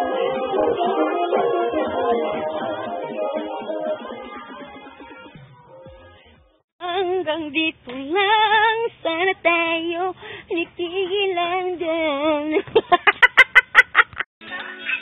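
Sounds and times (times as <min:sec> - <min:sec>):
woman singing with vibrato: 0:06.8 - 0:12.7
woman laughing: 0:12.6 - 0:14.3.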